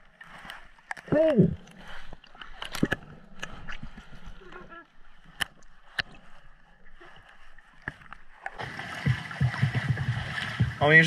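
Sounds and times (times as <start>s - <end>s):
lake water at shoreline: 0.0s - 11.0s
wind: 0.0s - 11.0s
muffled underwater sound: 4.2s - 5.2s.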